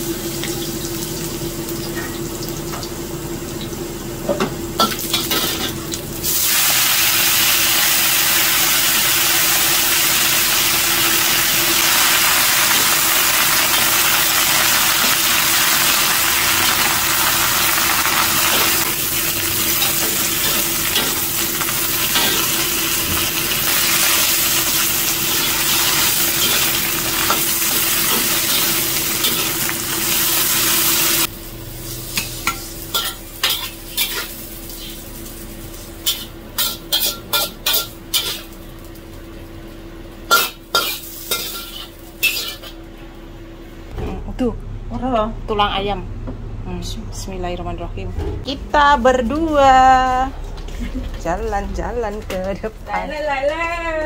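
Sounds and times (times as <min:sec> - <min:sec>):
food sizzling in a wok: 0:00.0 - 0:42.9.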